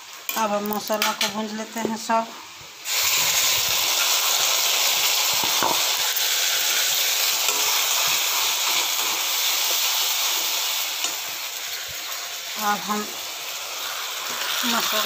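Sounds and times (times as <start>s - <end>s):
spice paste sizzling in hot oil: 0.0s - 15.0s.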